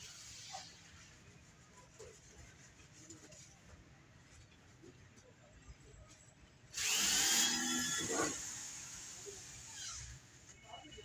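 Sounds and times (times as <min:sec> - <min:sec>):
power tool whining: 0:06.8 - 0:10.1.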